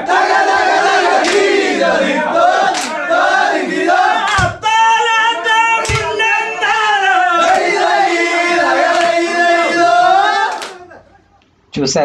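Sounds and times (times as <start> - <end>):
men singing in unison: 0.0 - 4.6, 5.8 - 11.0
sharp drum beats: 4.2 - 4.7, 5.8 - 6.3.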